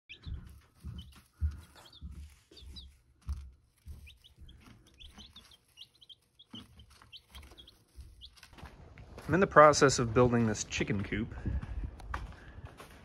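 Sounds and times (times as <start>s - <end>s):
baby chicks peeping: 0.1s - 8.7s
dull low thumps: 10.1s - 13.0s.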